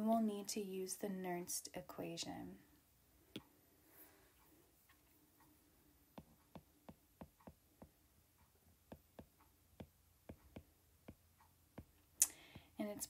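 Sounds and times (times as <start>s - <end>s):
stylus tapping on glass screen: 6.2s - 8.0s, 8.9s - 12.8s.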